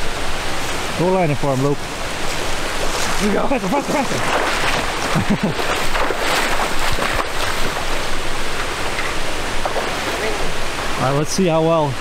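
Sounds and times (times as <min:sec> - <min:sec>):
river rushing over rocks: 0:00.0 - 0:12.0
wind buffeting microphone: 0:02.0 - 0:11.0.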